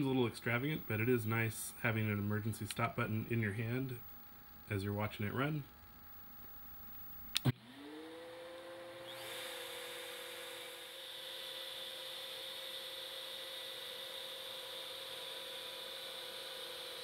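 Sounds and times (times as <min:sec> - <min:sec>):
shop vacuum motor hum: 0:07.4 - 0:17.0
router spindle whine: 0:07.5 - 0:17.0.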